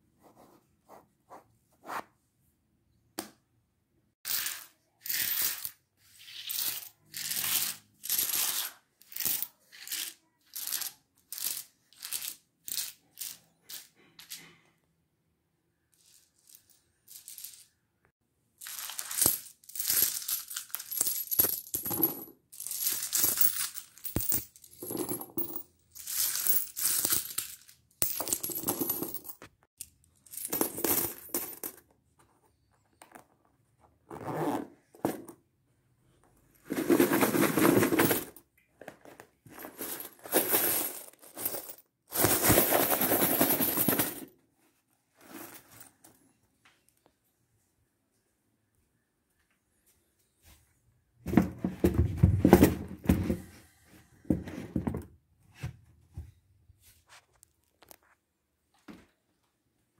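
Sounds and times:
coins jingling and clinking: 16.0 - 17.7, 18.6 - 29.4, 30.2 - 31.8, 36.7 - 38.4, 39.6 - 44.3.

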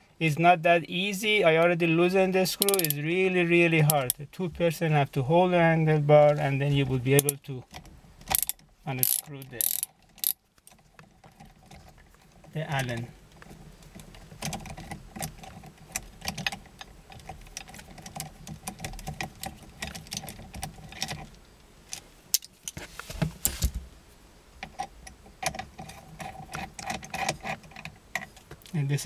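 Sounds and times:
ratchet wrench clicking: 2.6 - 3.0, 3.9 - 4.2, 7.2 - 7.4, 8.3 - 10.4.

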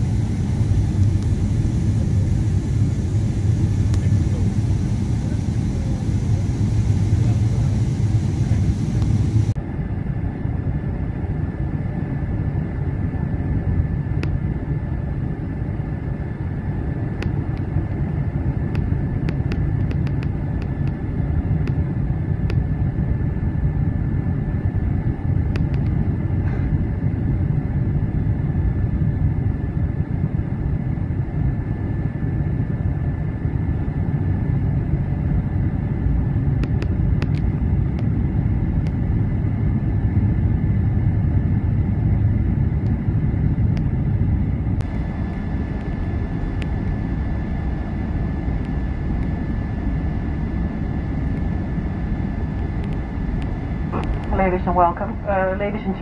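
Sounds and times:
rushing air hiss: 0.0 - 9.6
jet engine rumble: 0.0 - 56.0
thin steady whine: 0.0 - 56.0.

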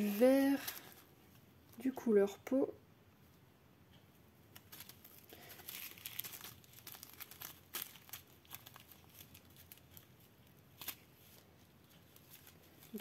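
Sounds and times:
plastic bags crinkling: 0.0 - 1.1, 4.5 - 13.0.

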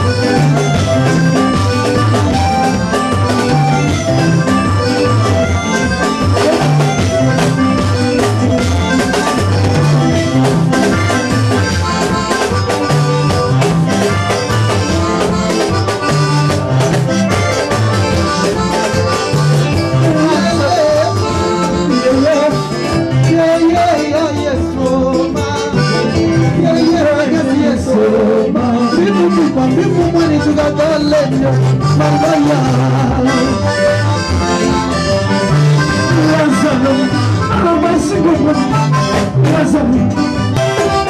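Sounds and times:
upbeat gospel band: 0.0 - 41.0
person singing: 19.9 - 34.0, 35.8 - 40.4.

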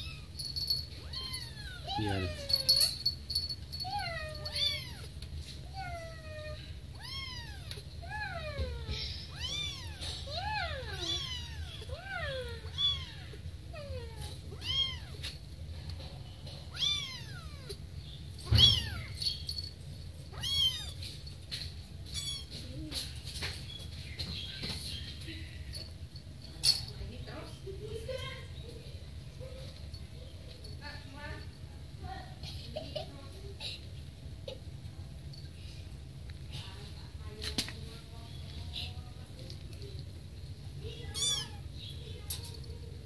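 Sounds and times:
kittens meowing: 0.0 - 3.1, 3.8 - 5.1, 5.8 - 15.3, 16.7 - 17.8, 18.5 - 19.2, 20.3 - 21.0, 22.1 - 22.6, 41.0 - 41.8.

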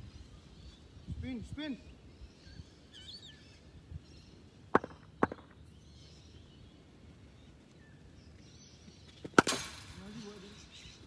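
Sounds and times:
cricket bat tapping ground: 4.7 - 5.6, 9.0 - 9.7.

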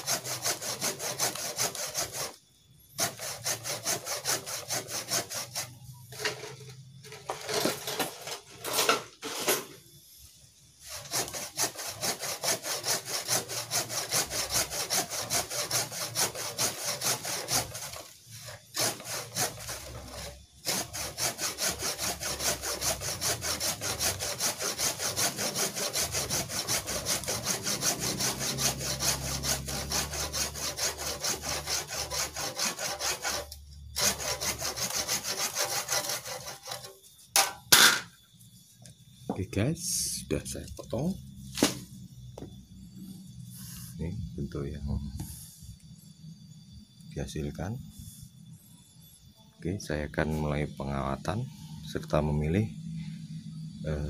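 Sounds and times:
hand saw cutting wood: 0.0 - 2.4, 3.0 - 6.7, 7.3 - 9.6, 10.8 - 37.9.

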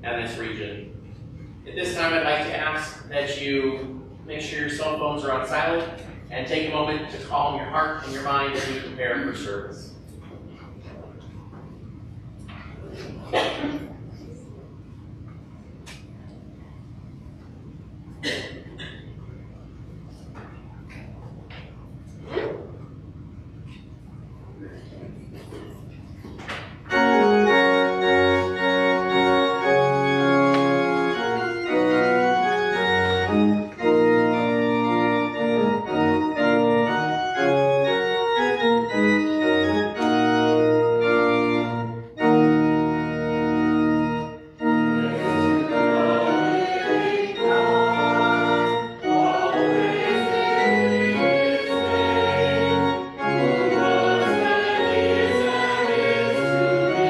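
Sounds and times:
church organ chords: 0.0 - 10.2, 26.8 - 57.0
congregation singing: 26.9 - 57.0.

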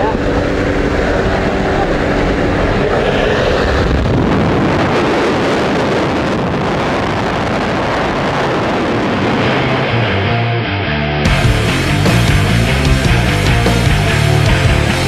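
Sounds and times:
wind buffeting microphone: 0.0 - 10.2
plane engine running: 0.0 - 15.0.

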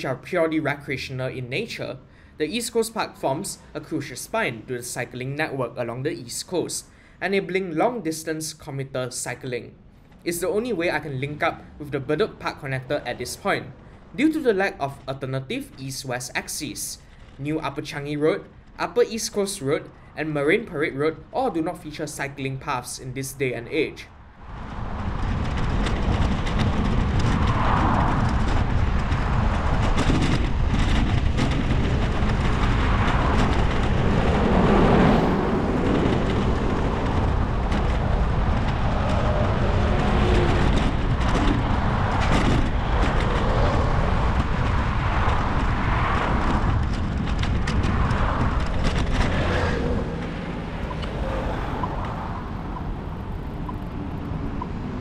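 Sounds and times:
vehicles passing on road: 0.0 - 55.0
steady low rumble: 23.0 - 55.0.

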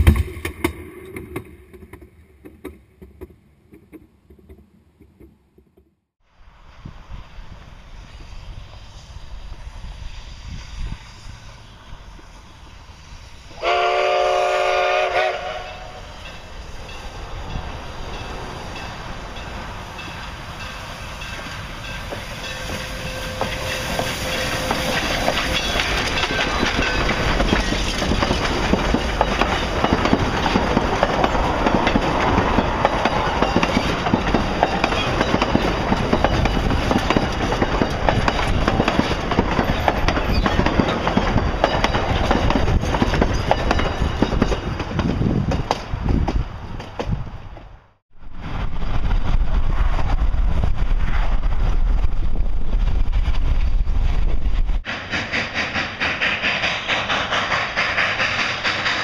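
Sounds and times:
steam locomotive running: 6.6 - 59.0
steam locomotive whistle blast: 13.2 - 16.2, 22.2 - 26.3
coaches clattering over rail joints: 16.2 - 47.7.

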